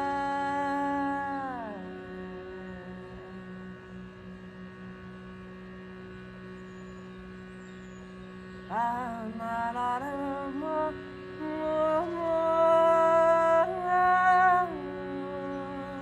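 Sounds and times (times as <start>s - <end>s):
woman singing wordless tones: 0.0s - 3.9s, 8.7s - 16.0s
reed drone chord: 0.0s - 16.0s.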